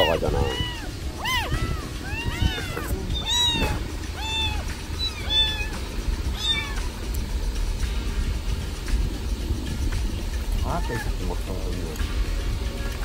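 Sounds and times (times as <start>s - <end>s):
kitten mewing: 0.0s - 7.0s, 10.7s - 11.2s
low rumble: 0.0s - 13.0s.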